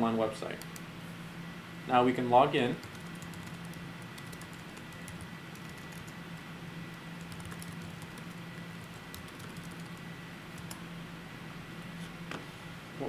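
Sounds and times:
keyboard typing: 0:02.8 - 0:06.2, 0:07.2 - 0:10.8.

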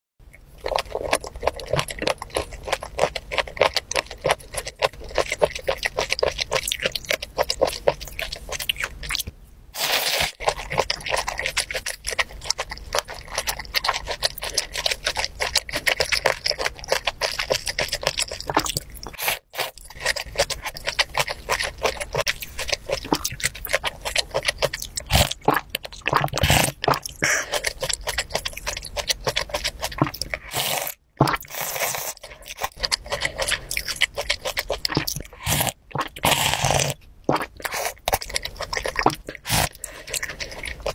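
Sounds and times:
chewing and wet mouth clicks: 0:10.4 - 0:30.6, 0:31.2 - 0:40.9.

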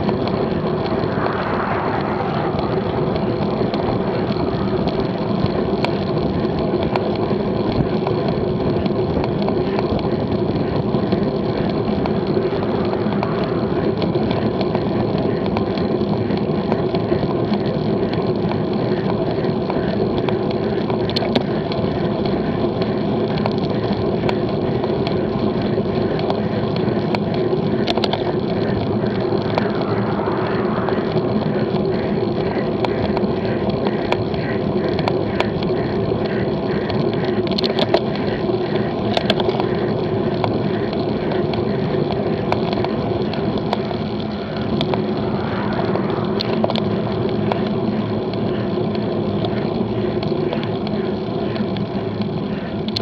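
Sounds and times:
car passing: 0:00.0 - 0:05.8, 0:11.9 - 0:15.4, 0:28.5 - 0:32.8, 0:43.8 - 0:48.2
wind rushing: 0:00.3 - 0:05.2, 0:12.4 - 0:15.0, 0:28.9 - 0:32.3, 0:44.4 - 0:47.6.

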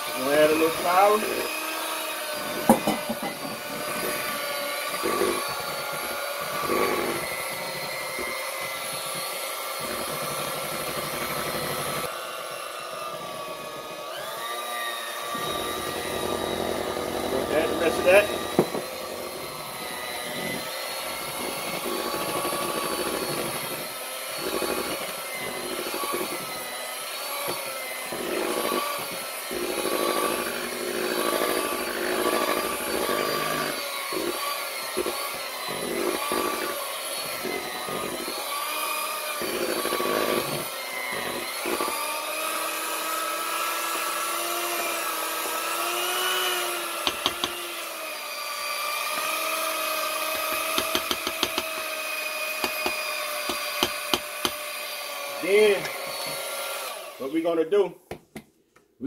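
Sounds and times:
electric hand mixer whining: 0:00.0 - 0:57.9.

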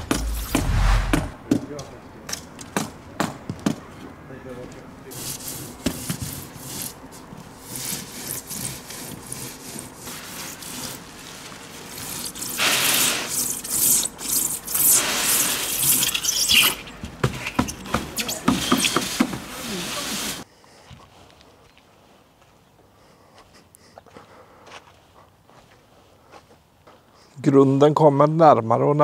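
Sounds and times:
foam scraping and rasping: 0:05.1 - 0:20.4.

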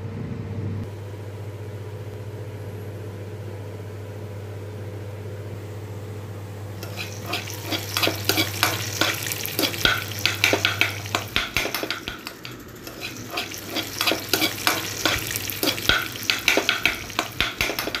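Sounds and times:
spatula scraping a frying pan: 0:06.8 - 0:18.0.

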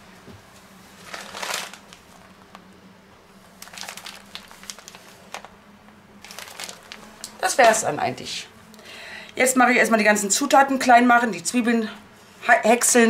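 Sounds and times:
rustling and crinkling: 0:00.2 - 0:02.8, 0:03.4 - 0:08.0.

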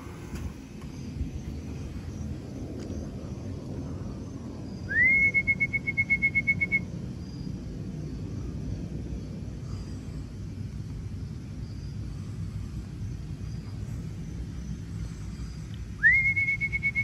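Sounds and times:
low rumble: 0:00.0 - 0:05.8
warbling whistle: 0:04.8 - 0:06.9, 0:16.0 - 0:17.0.

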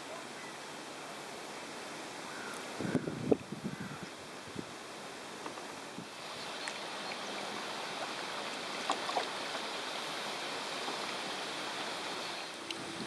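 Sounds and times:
river water running over riffle: 0:00.0 - 0:13.0
faint ticks: 0:12.5 - 0:12.9.

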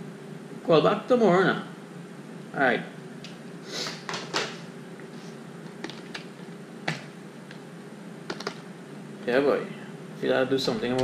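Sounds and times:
computer keyboard key clicks: 0:08.3 - 0:08.6.

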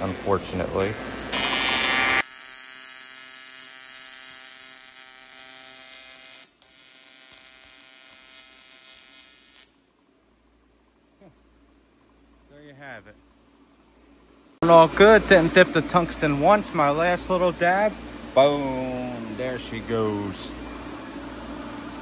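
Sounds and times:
welding hiss: 0:00.0 - 0:09.8
welding arc buzzing: 0:00.0 - 0:09.9.

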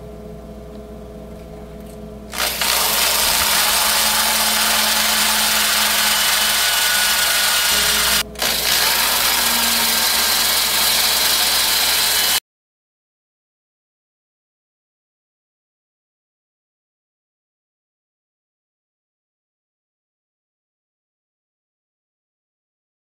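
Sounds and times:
electric drill drilling steel: 0:02.3 - 0:12.4.

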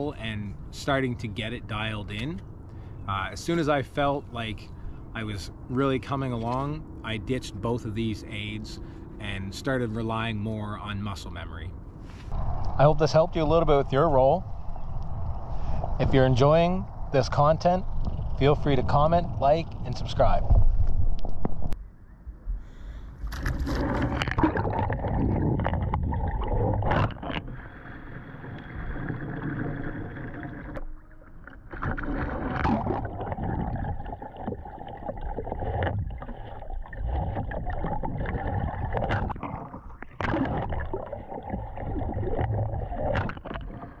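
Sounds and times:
water splashing around kayak: 0:23.1 - 0:44.0.

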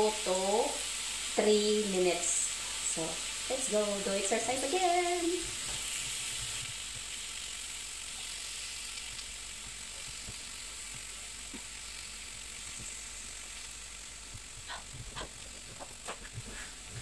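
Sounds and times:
meat sizzling on grill pan: 0:00.0 - 0:17.0.

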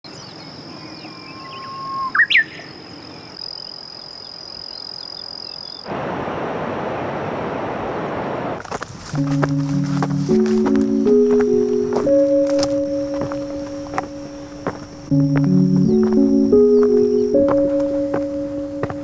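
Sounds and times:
high insect trill: 0:09.2 - 0:19.0.

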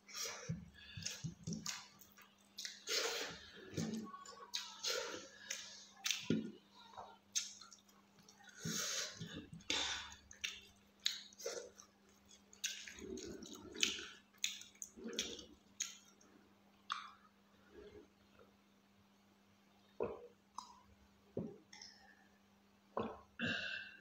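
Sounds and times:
wet chewing smacks: 0:00.5 - 0:04.8, 0:07.3 - 0:16.2.

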